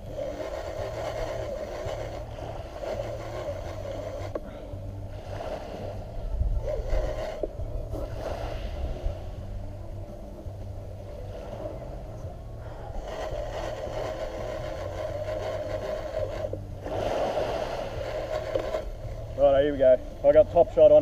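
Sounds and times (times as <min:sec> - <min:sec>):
fishing reel whirring: 0:00.0 - 0:21.0.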